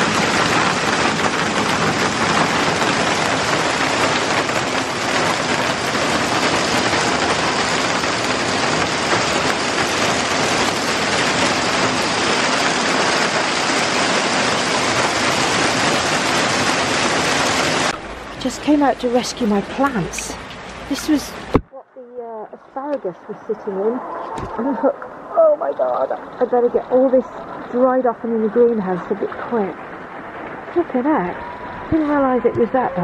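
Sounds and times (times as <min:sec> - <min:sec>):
hail and heavy rain on plastic roof: 0:00.0 - 0:21.6.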